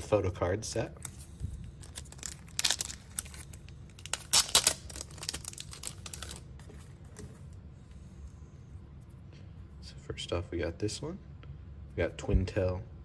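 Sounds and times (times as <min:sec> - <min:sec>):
card and packaging crinkling: 0:00.9 - 0:07.6.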